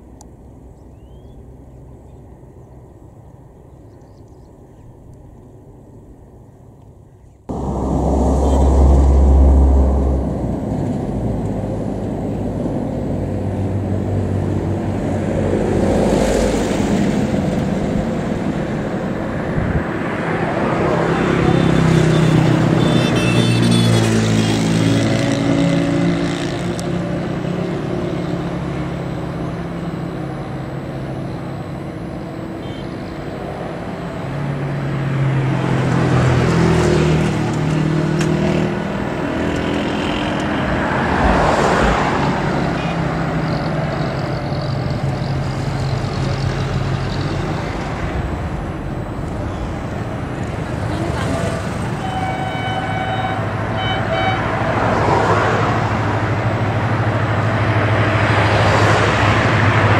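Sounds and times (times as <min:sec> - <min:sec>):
road vehicles passing: 0:00.0 - 0:59.9
diesel locomotive engine running: 0:36.4 - 0:58.4.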